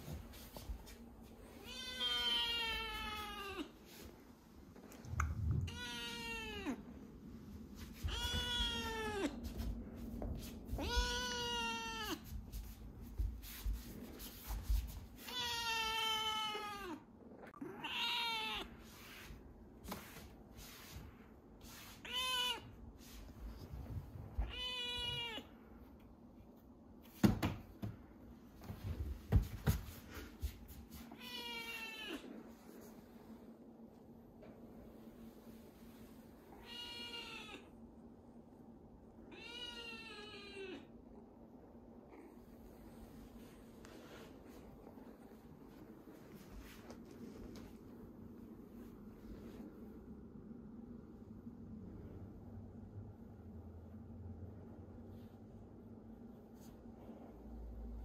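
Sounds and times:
kitten meowing: 5.6s - 6.8s, 8.1s - 9.3s, 10.8s - 12.2s, 24.4s - 25.5s.

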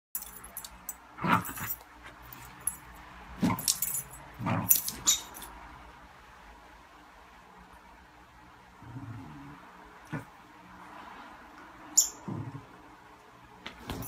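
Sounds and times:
metal dog tags jingling: 0.2s - 1.8s, 3.5s - 5.5s.

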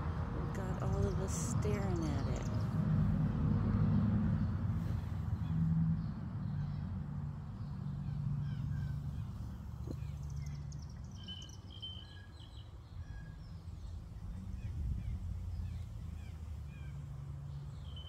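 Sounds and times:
low outdoor hum: 0.0s - 18.0s
small birds chirping: 0.4s - 2.8s, 4.4s - 18.0s.

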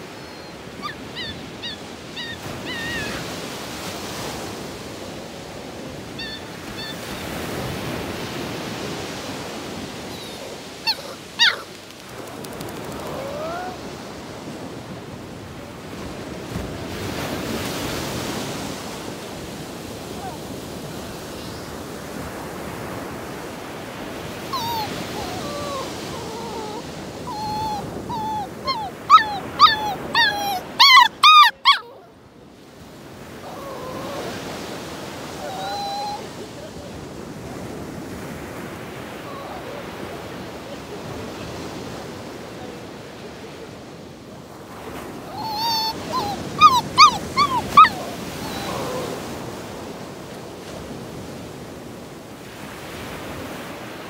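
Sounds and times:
dog whining and yelping: 0.0s - 3.5s, 6.2s - 7.7s, 9.7s - 13.9s, 24.4s - 32.2s, 33.4s - 36.4s, 39.2s - 39.8s, 45.3s - 49.6s.

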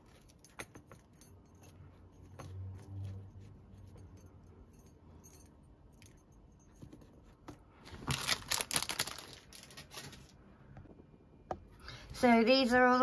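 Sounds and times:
foil wrapper crinkling: 7.9s - 10.3s.

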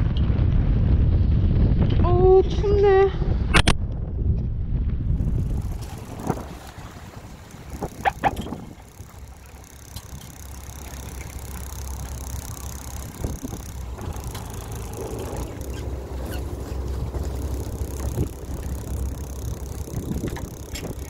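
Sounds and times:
wind: 0.0s - 21.0s
boat engine rumbling: 5.0s - 21.0s
water noise: 5.0s - 21.0s.

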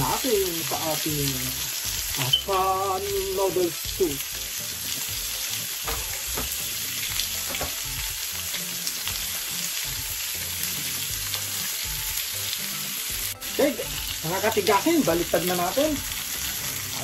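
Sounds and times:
chicken sizzling in grill pan: 0.0s - 17.0s.

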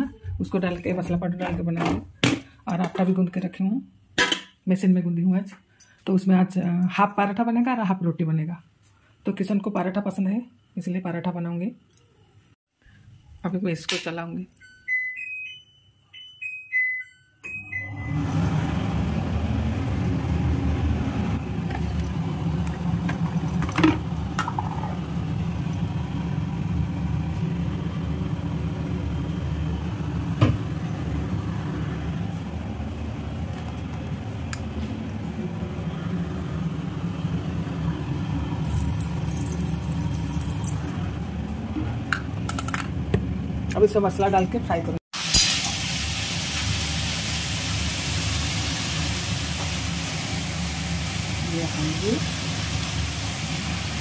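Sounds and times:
extractor fan humming: 17.6s - 45.0s.

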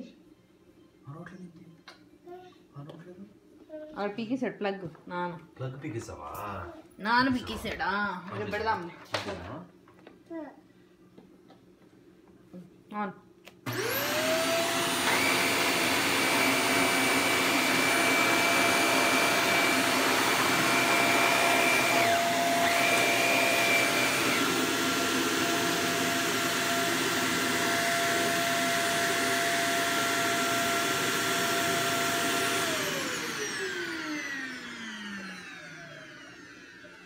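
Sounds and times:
vacuum cleaner motor whining: 13.6s - 37.0s.

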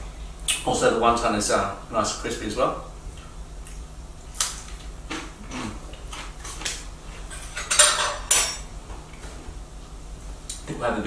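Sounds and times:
cutlery clinking on a plate: 7.3s - 8.7s.

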